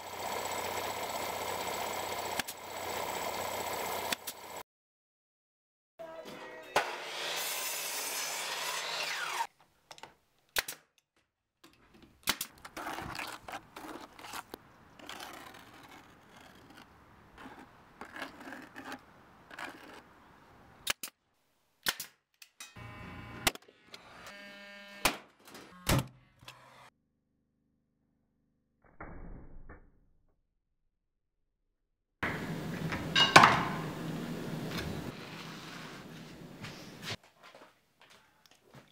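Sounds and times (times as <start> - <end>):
saw cutting wood: 6.8 - 9.5, 22.8 - 26.9.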